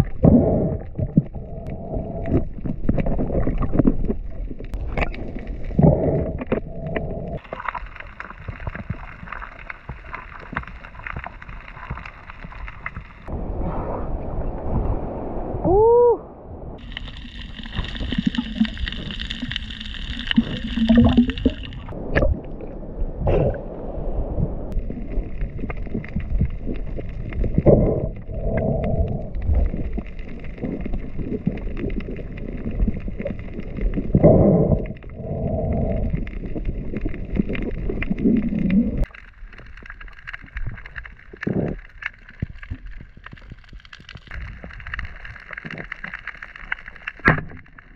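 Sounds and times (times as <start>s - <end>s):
bubbles gurgling: 0.0s - 13.7s, 16.8s - 23.7s, 24.7s - 47.9s
underwater water rushing: 0.0s - 47.9s.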